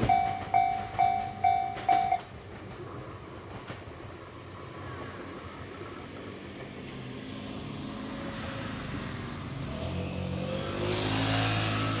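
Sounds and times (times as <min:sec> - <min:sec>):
vehicle engine approaching: 0:06.3 - 0:12.0.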